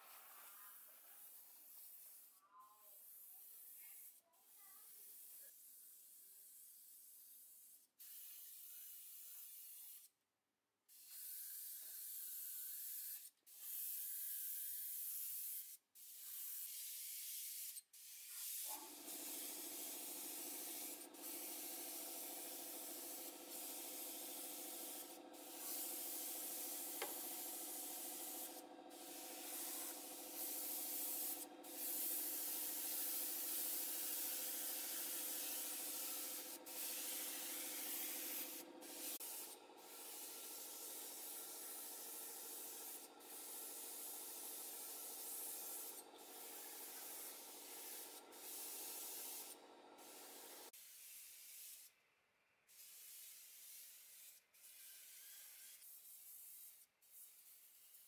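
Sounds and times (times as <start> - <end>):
sandpaper scratching metal: 19.2 - 39.4.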